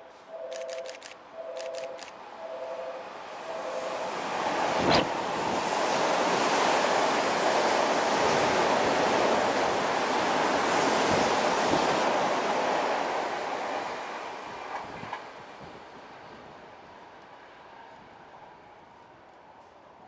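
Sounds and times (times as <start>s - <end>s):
electric train passing: 0.0s - 19.6s
short clicks: 0.5s - 2.2s.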